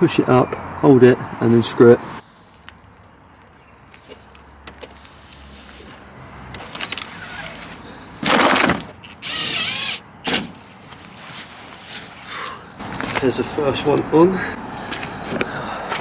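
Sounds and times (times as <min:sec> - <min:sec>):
cordless drill whining: 0:09.0 - 0:10.0.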